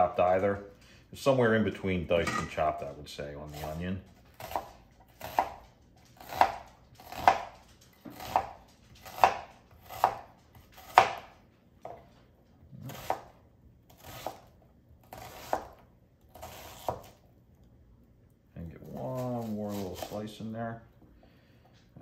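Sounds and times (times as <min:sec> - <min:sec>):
knife chopping onion on board: 0:04.3 - 0:12.0, 0:12.8 - 0:14.5, 0:15.1 - 0:17.2.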